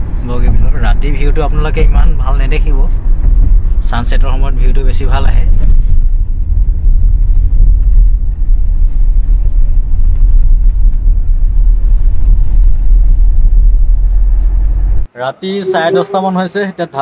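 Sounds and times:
car interior road rumble: 0:00.0 - 0:16.3.

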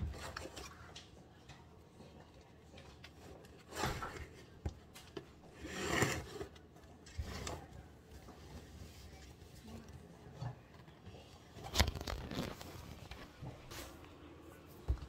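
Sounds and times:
containers scraping on table: 0:05.6 - 0:06.5.

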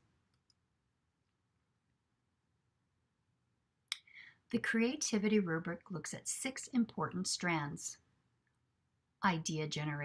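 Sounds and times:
narrator speaking: 0:04.5 - 0:08.1, 0:09.2 - 0:10.0.

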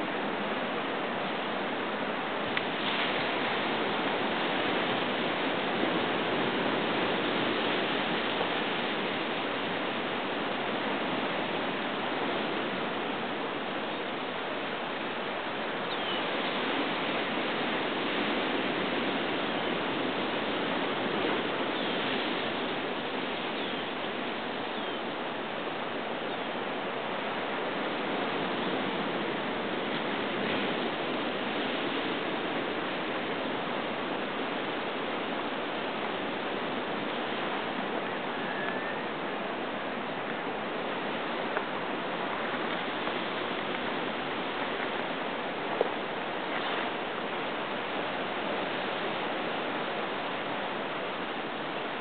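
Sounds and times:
ocean surf breaking on rocks: 0:00.0 - 0:52.0
faint high chirps: 0:38.3 - 0:39.1.

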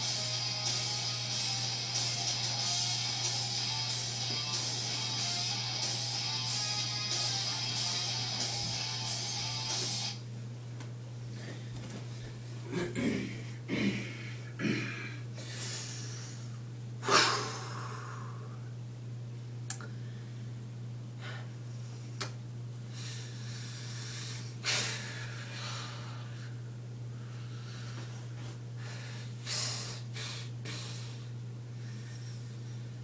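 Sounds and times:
steady low hum: 0:00.0 - 0:33.0
person breathing heavily: 0:12.6 - 0:18.6, 0:22.9 - 0:32.9.

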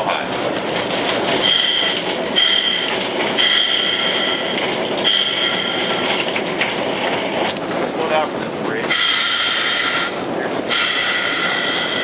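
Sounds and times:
engine and wheels rumbling: 0:00.0 - 0:12.0
locomotive air horn blasts: 0:01.4 - 0:04.5, 0:05.1 - 0:05.9, 0:08.9 - 0:12.0.

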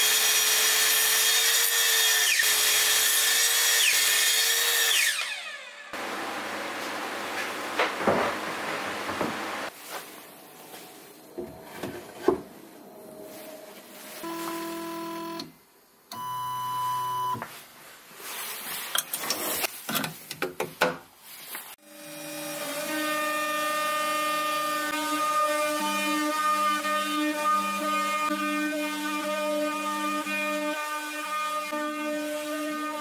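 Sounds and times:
router axis motors whining: 0:01.3 - 0:06.5, 0:14.2 - 0:15.5
plywood panels knocking: 0:07.7 - 0:09.6
router spindle whine: 0:14.2 - 0:15.5.

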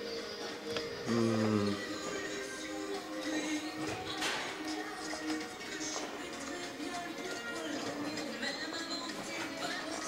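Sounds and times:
music with sustained held notes: 0:00.0 - 0:10.0.

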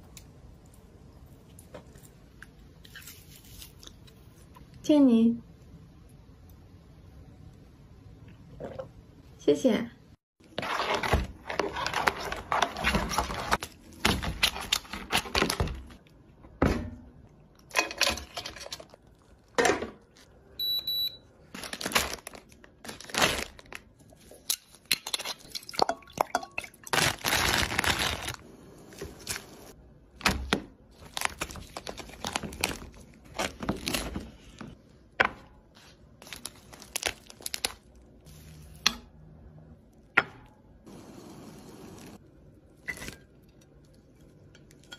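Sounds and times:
crab shells cracking and crunching: 0:36.2 - 0:38.0.

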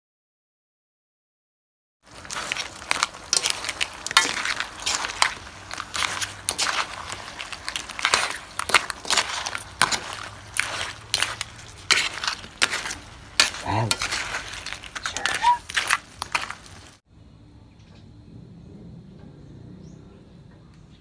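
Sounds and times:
spatula scraping a metal wok: 0:02.1 - 0:16.9.

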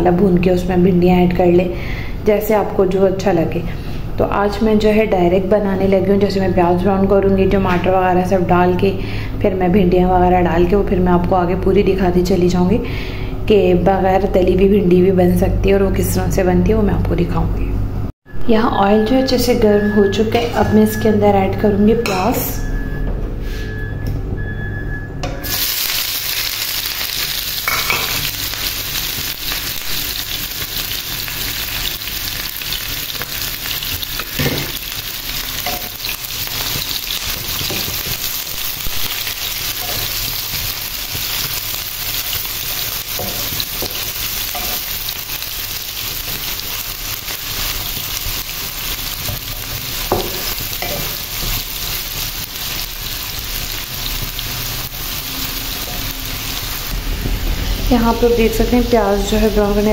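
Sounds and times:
onions sizzling in oil: 0:25.4 - 0:59.9.

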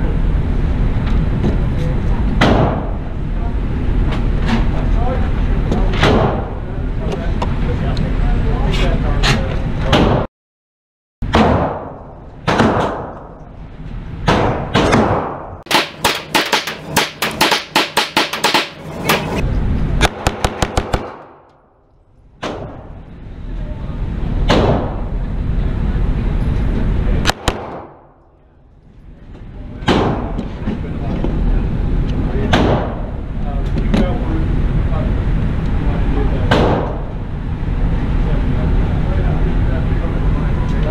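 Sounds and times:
pistol shots echoing indoors: 0:27.3 - 0:28.0.

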